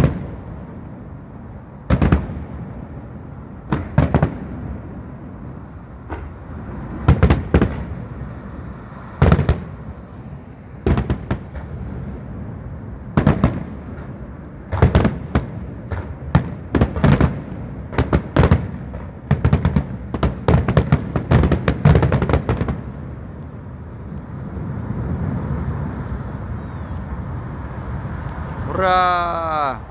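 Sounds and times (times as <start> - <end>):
fireworks bursting with bangs: 0.0 - 0.4, 1.8 - 2.9, 3.6 - 5.1, 6.0 - 23.4
low city rumble: 0.0 - 29.9.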